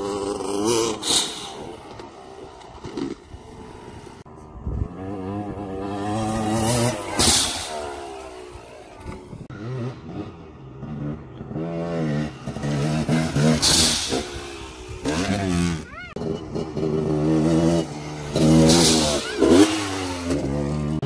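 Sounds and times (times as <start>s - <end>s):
dirt bike engine revving: 0.0s - 21.0s
bursts of rushing noise: 5.6s - 9.5s.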